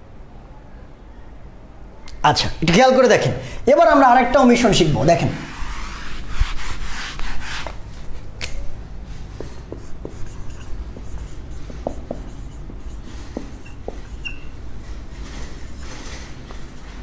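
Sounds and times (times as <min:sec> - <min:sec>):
whiteboard eraser rubbing: 0:05.4 - 0:08.1, 0:09.1 - 0:17.0
marker pen squeaking on whiteboard: 0:09.3 - 0:16.6.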